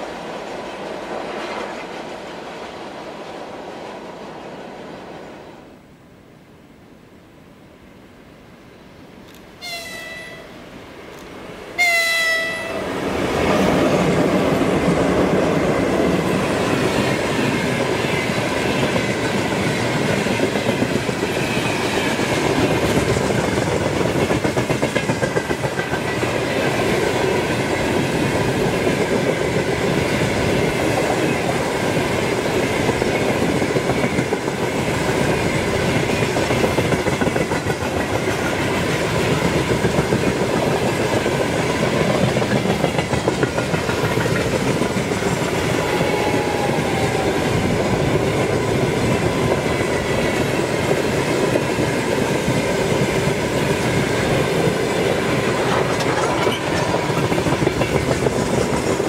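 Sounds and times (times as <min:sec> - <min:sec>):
train wheels clattering over rails: 0:13.1 - 0:46.2, 0:48.1 - 0:59.0.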